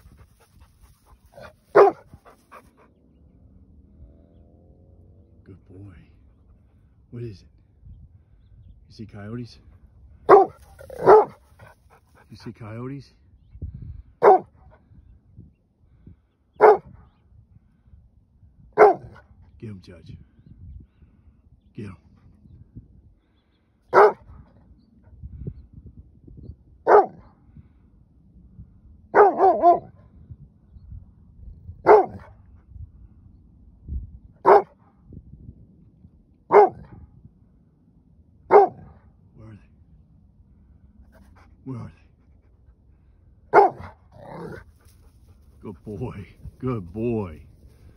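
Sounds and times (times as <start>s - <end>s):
dog barking: 1.3s - 2.4s, 10.3s - 11.5s, 14.2s - 14.5s, 16.6s - 16.9s, 18.8s - 19.2s, 23.9s - 24.2s, 26.8s - 27.2s, 29.1s - 29.9s, 31.8s - 32.4s, 34.4s - 34.8s, 36.5s - 37.0s, 38.5s - 39.0s, 43.5s - 44.6s.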